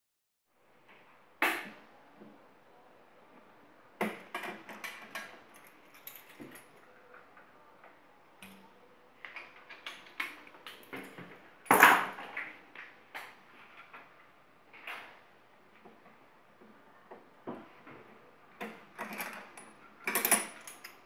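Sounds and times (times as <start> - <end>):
metal clicks and clinks: 4.3 - 6.8, 18.9 - 21.0.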